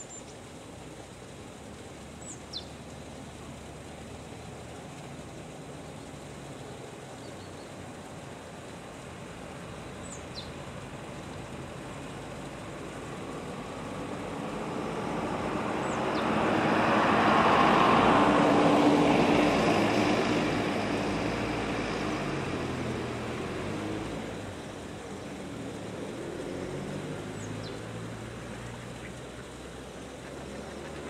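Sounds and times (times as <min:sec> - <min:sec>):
vehicle passing by: 0:10.8 - 0:31.0.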